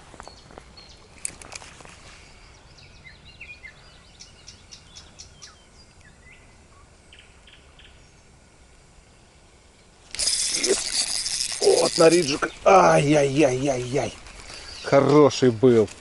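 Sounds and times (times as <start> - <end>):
songbird warbling and chirping: 2.3 - 8.3, 10.2 - 15.3.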